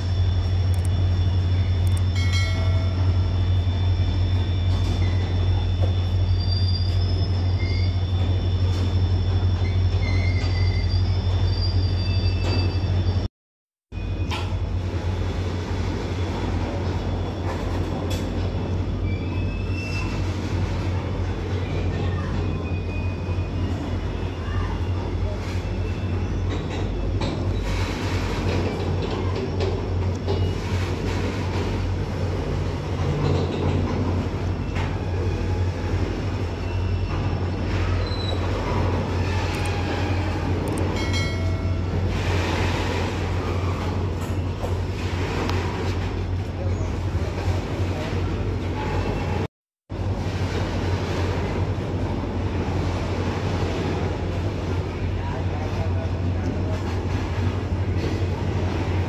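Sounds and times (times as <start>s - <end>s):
train rail rumble: 0.0s - 13.3s, 13.9s - 59.0s
thin wheel squeal: 1.2s - 13.3s, 18.7s - 20.9s, 22.1s - 28.2s, 34.1s - 44.7s.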